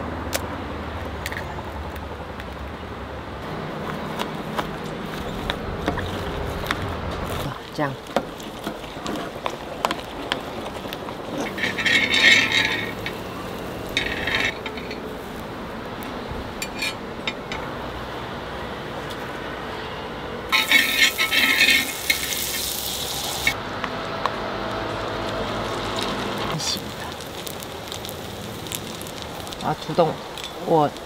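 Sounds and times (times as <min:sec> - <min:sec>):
bread sizzling in a pan: 0:20.5 - 0:23.6, 0:24.5 - 0:31.0.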